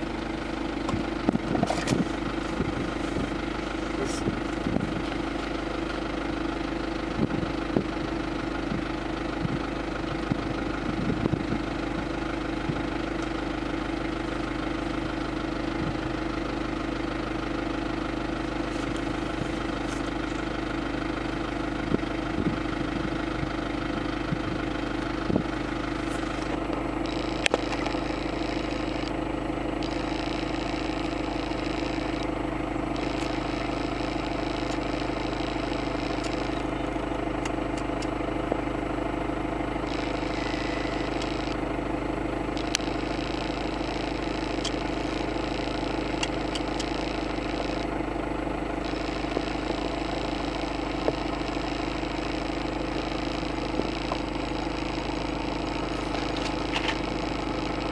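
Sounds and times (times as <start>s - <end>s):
car engine idling: 0.0s - 57.9s.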